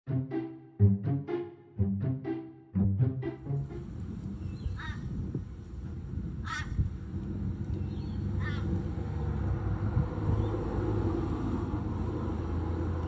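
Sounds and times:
crow cawing: 4.8 - 5.0, 6.4 - 6.8, 8.4 - 8.6.

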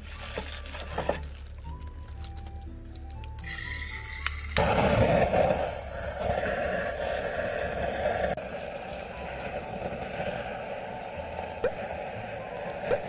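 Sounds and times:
gas torch hissing: 3.4 - 13.0.

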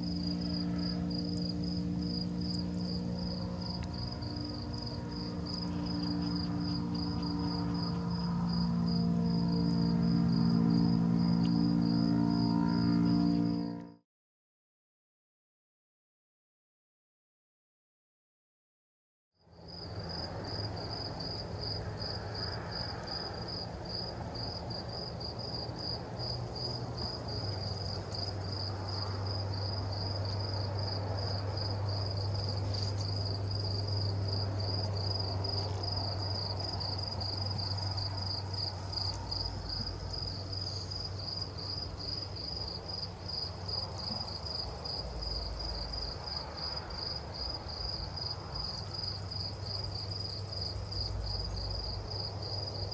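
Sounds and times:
insect chirping: 0.0 - 13.5, 19.7 - 52.9
low steady hum: 0.0 - 14.0.

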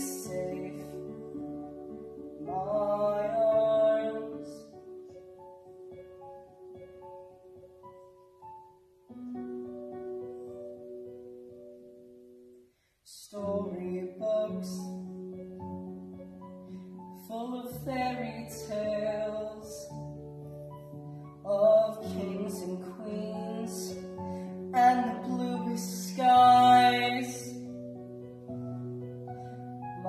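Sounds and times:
man singing a slow ballad: 0.0 - 1.8, 2.4 - 4.8, 13.1 - 15.0, 17.2 - 20.0, 21.4 - 27.7
electronic keyboard piano: 0.0 - 12.7, 13.4 - 30.0.

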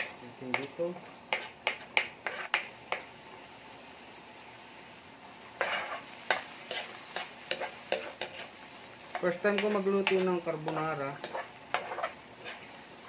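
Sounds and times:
spatula scraping and tapping a pan: 0.0 - 3.1, 5.6 - 12.7
food sizzling in a frying pan: 0.0 - 13.0.

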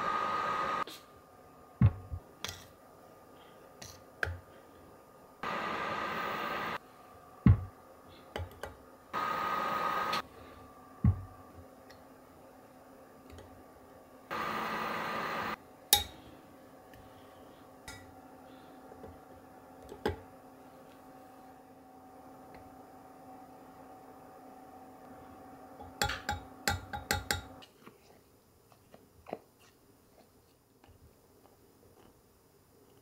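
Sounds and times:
microwave oven humming: 0.0 - 2.2, 5.2 - 8.2, 8.8 - 27.6.

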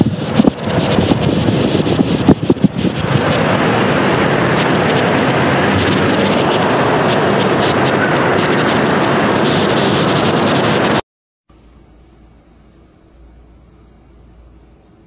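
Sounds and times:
heavy rain: 0.0 - 11.0
strong storm wind: 0.0 - 11.0.

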